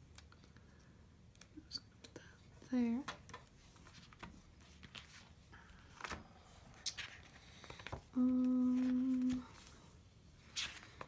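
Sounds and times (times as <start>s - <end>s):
woman humming: 8.1s - 9.6s.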